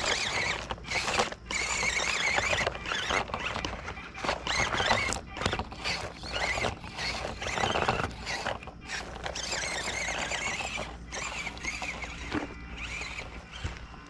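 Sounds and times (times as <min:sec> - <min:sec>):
rc car electric motor whining: 0:00.0 - 0:14.0
tyres crunching on gravel: 0:00.0 - 0:14.0.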